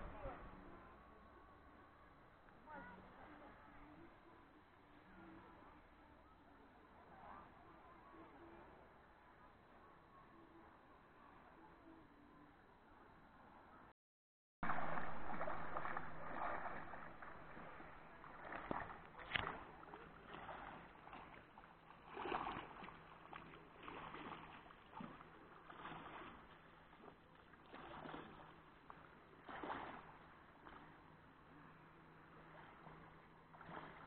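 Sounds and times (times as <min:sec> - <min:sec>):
sea waves breaking on shore: 0:14.7 - 0:31.0.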